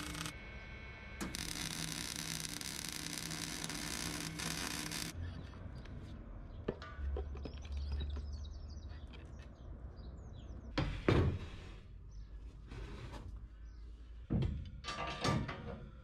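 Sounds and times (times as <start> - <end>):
birds chirping: 5.2 - 10.8.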